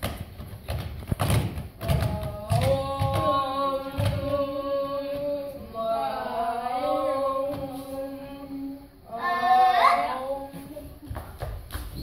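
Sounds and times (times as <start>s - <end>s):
children chanting: 2.5s - 10.8s.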